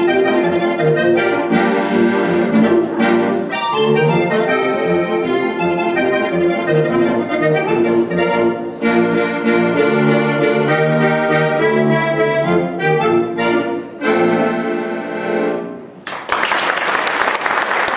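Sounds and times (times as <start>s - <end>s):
button accordion folk tune: 0.0s - 16.0s
applause: 16.0s - 17.9s.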